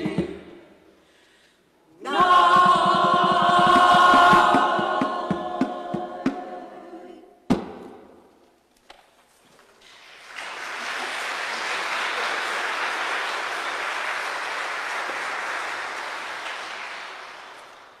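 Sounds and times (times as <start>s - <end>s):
audience applauding: 9.8s - 18.0s.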